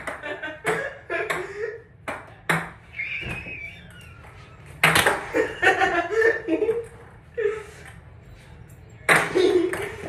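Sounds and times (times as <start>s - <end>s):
ping pong balls bouncing: 0.0s - 5.6s, 9.0s - 10.0s.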